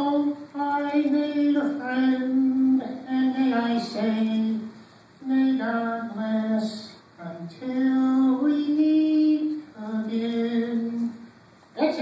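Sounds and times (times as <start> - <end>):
short breaths: 4.7 - 5.2.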